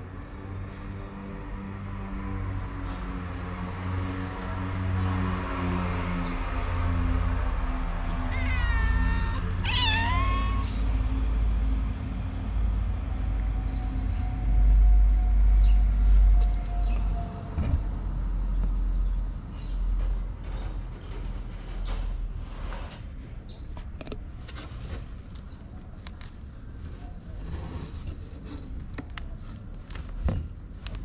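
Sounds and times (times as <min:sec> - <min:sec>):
cat meowing: 0:08.1 - 0:10.9.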